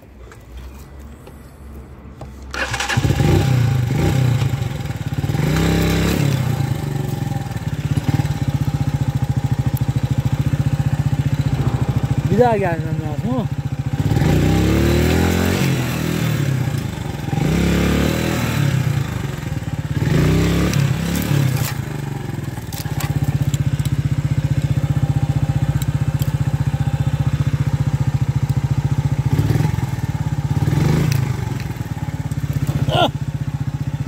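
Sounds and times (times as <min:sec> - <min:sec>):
motorcycle engine revving: 0:02.5 - 0:34.0
motorcycle clattering: 0:05.2 - 0:14.4, 0:19.6 - 0:34.0.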